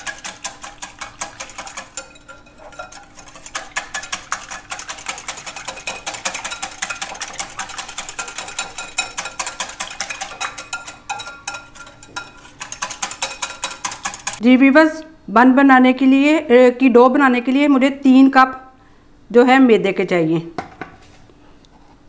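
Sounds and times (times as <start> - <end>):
liquid sloshing: 0.0 - 14.4.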